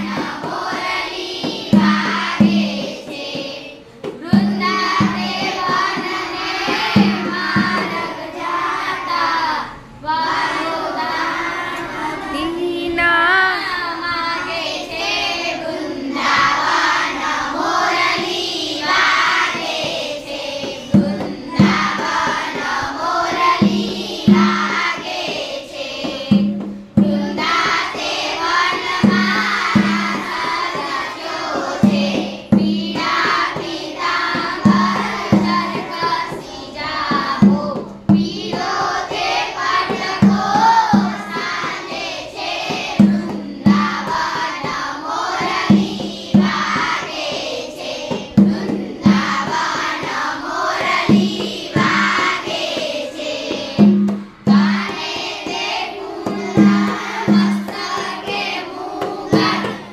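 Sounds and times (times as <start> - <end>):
girls singing together: 0.0 - 59.9
low thumping beat: 20.7 - 25.0.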